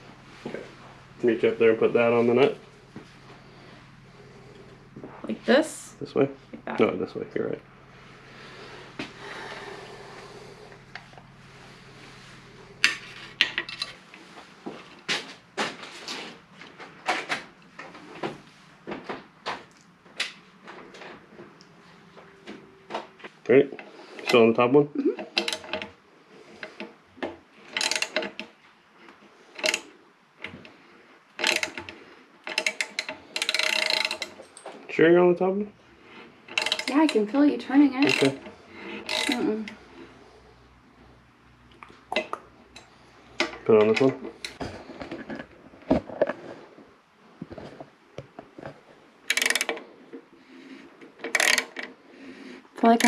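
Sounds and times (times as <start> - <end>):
ratchet wrench clicking: 27.8 - 28.3, 29.6 - 29.9, 31.4 - 34.4, 36.5 - 37.2, 38.0 - 39.8, 49.3 - 49.8, 51.3 - 51.9.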